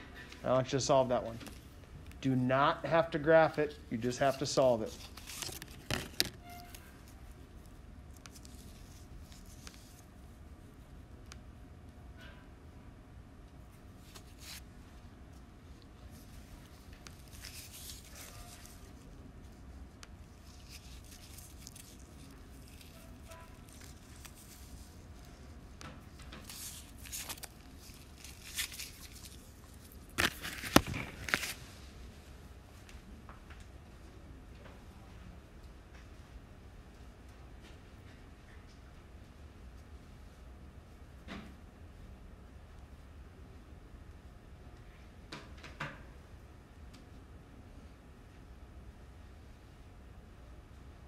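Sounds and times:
rustling: 16.1 - 31.7.

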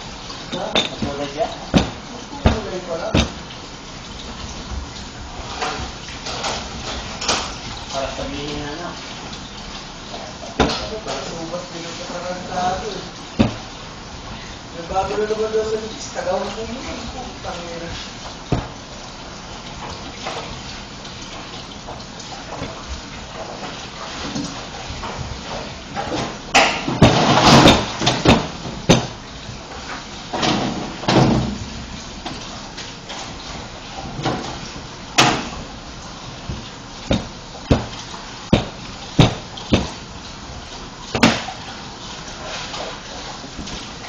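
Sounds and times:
sharp knocks and clacks: 0.5 - 3.5, 26.0 - 29.2, 36.5 - 40.0.

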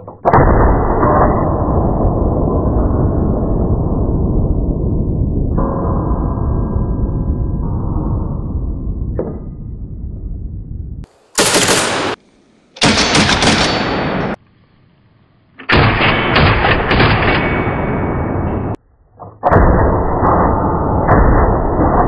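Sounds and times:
low noise: 0.0 - 22.0
rifle gunfire: 11.4 - 12.2, 12.8 - 14.4.

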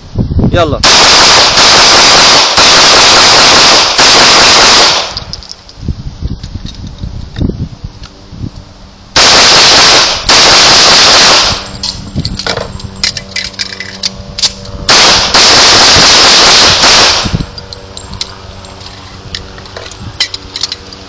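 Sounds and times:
pistol gunshots: 0.8 - 5.2, 9.2 - 11.7, 14.9 - 17.4
metallic clicks and knocks: 17.6 - 21.0.

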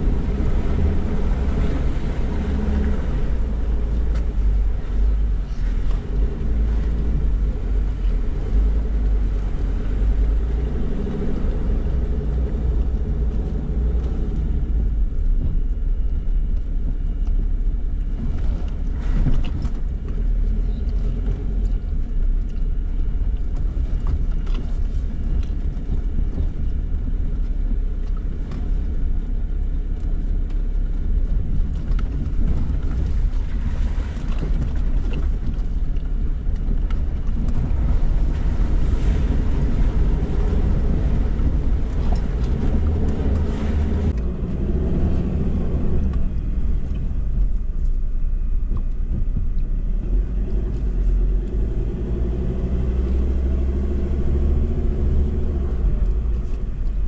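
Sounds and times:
engine and road rumble: 0.0 - 57.0.

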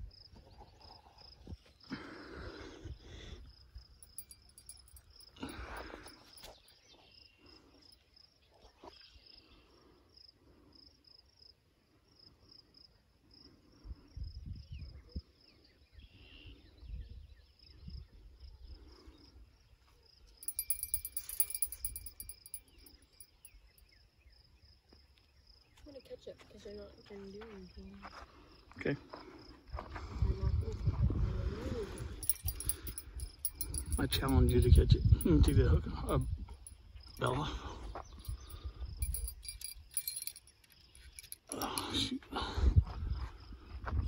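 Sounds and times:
insect chirping: 2.8 - 14.9, 17.6 - 25.9, 31.8 - 43.8
wind rumble on microphone: 13.9 - 15.3, 29.8 - 36.6, 42.6 - 44.0.

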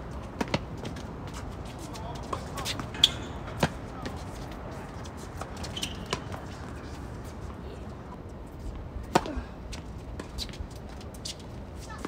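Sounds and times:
low background noise: 0.0 - 12.0
racket hitting tennis ball: 2.3 - 4.2.

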